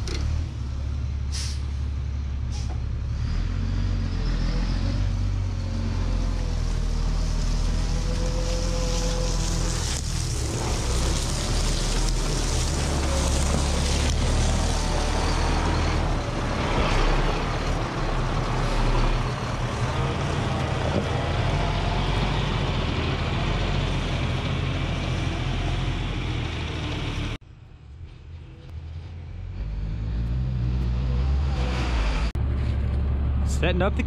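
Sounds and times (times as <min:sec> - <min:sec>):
tyres rolling on dirt: 0:06.8 - 0:27.4.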